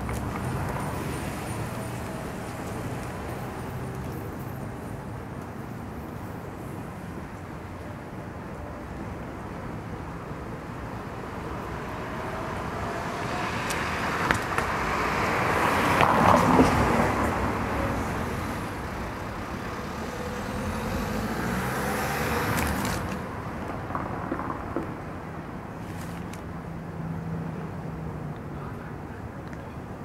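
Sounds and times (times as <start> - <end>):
motor vehicle passing: 12.0 - 23.3.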